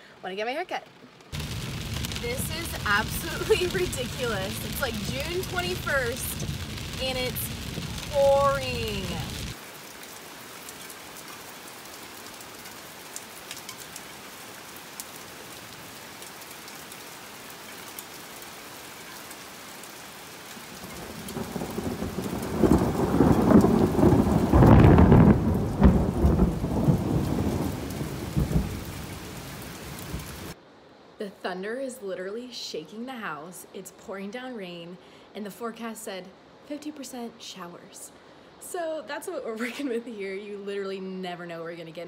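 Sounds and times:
heavy rain falling: 1.3s - 30.6s
thunder rolling: 1.4s - 9.6s, 20.8s - 30.6s.

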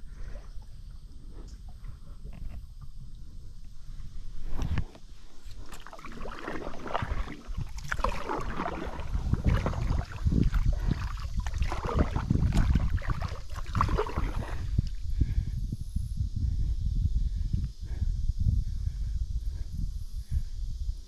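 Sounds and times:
steady low rumble: 0.0s - 21.0s
paddle splashing in water: 4.5s - 15.0s.

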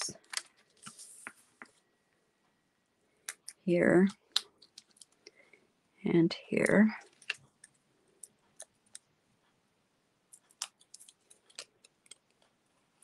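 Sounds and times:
paper and craft tools clicking: 10.4s - 12.6s.

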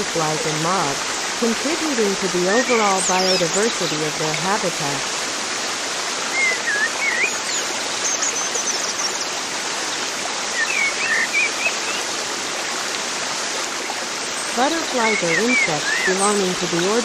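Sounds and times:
running water: 0.0s - 17.0s
bird chirps: 6.3s - 9.2s.

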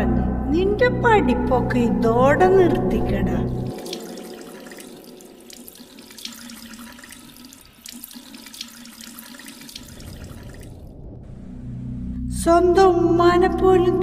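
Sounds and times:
water splashing on face: 3.5s - 11.0s
low hum: 10.0s - 14.0s.

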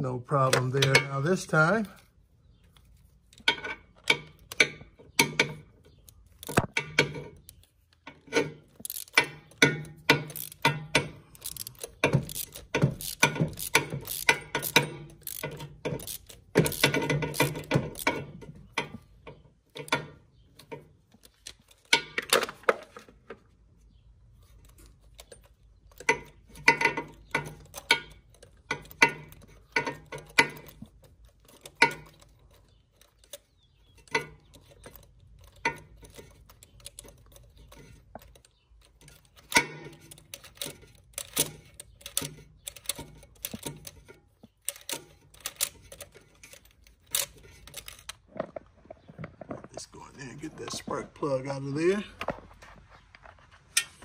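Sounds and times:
socket ratchet clicking: 8.9s - 18.2s.

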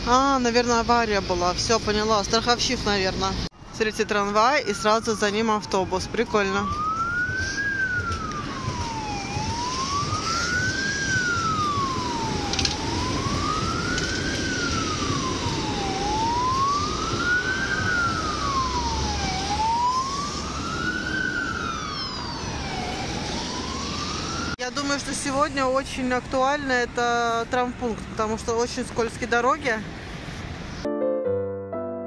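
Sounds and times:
street traffic rumble: 0.0s - 30.9s
emergency vehicle siren wailing: 3.5s - 25.8s.

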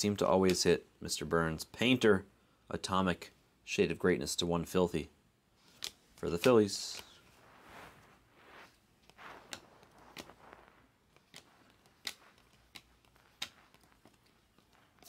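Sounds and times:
cards clicking: 5.6s - 7.3s, 9.0s - 15.0s
soft card rustling: 5.6s - 15.0s.

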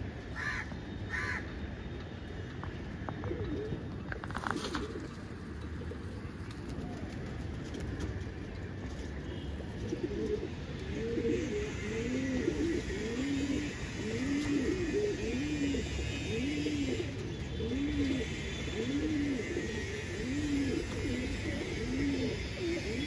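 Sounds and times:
pigeons cooing: 3.2s - 7.1s, 9.7s - 23.0s.

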